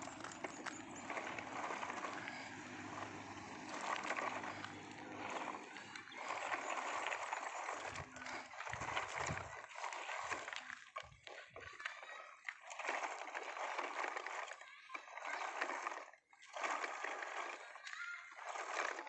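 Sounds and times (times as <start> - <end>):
toy truck wheels crunching on gravel: 0.0 - 10.9.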